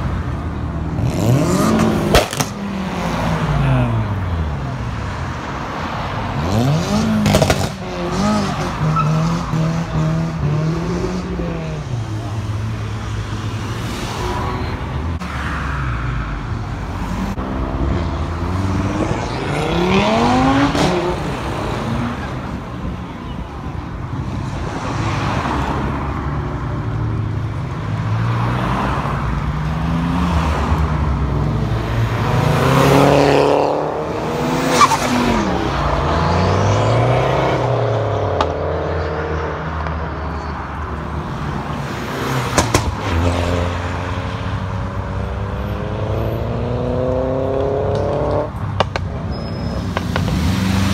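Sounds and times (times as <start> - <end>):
sharp crack: 2.1 - 2.6
cars accelerating past: 17.0 - 22.6, 24.6 - 40.2, 41.3 - 50.9.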